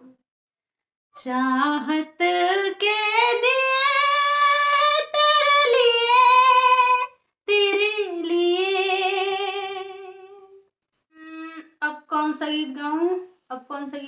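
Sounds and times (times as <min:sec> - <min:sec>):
woman singing unaccompanied: 0:01.2 - 0:10.5.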